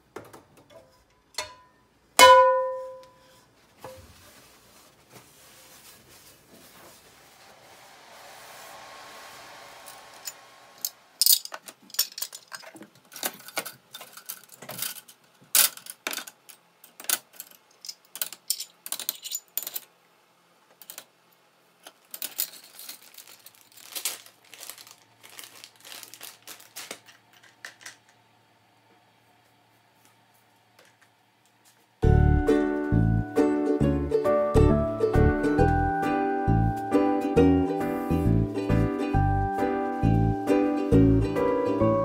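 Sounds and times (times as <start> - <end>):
plastic pack crinkling: 22.2 - 27.9.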